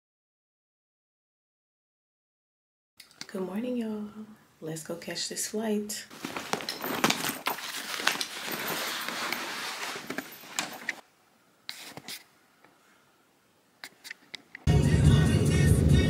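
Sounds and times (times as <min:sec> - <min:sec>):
rustling: 0:06.1 - 0:11.0.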